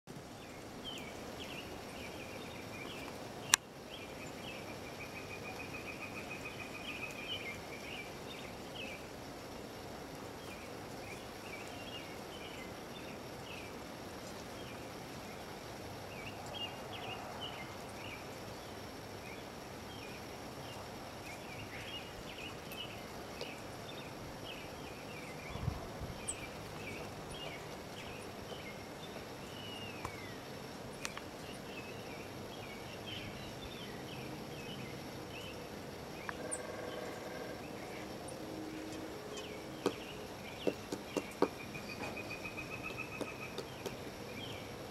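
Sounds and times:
steady low hiss: 0:00.1 - 0:44.9
small birds chirping: 0:00.2 - 0:44.9
bird trill: 0:38.8 - 0:44.6.

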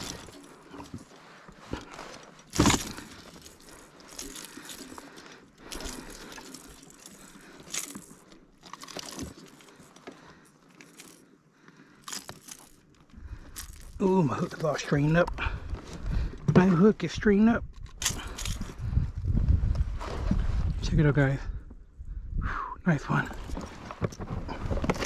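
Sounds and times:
fishing tackle rattling: 0:00.0 - 0:16.7, 0:17.6 - 0:18.9.

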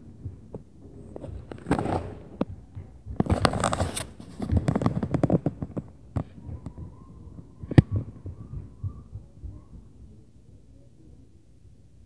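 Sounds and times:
close scraping and rustling: 0:01.0 - 0:02.4, 0:03.2 - 0:05.8.

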